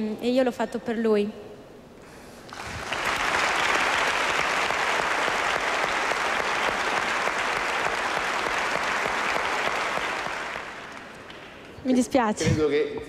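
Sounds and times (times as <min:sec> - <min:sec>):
audience applauding: 0:02.5 - 0:11.8.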